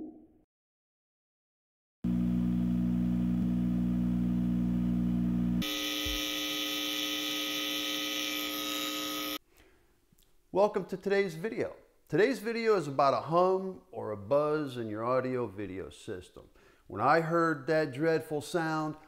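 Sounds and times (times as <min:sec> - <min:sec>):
harsh electrical buzz: 0:02.1 - 0:09.4.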